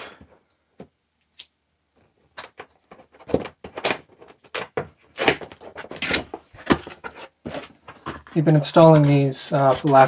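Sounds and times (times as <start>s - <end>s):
cardboard box scraping and knocking: 5.4s - 10.0s.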